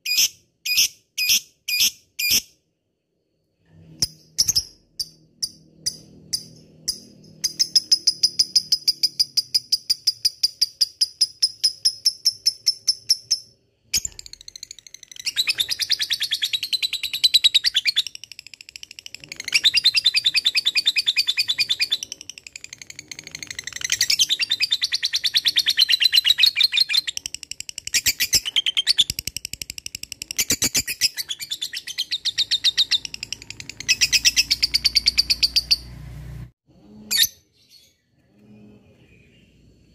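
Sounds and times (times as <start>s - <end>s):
lovebird chattering chirps: 4.0s - 35.9s.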